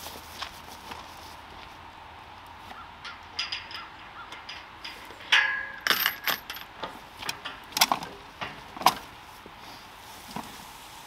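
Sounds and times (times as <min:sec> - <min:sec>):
metal gate latch rattling: 0:02.9 - 0:09.1.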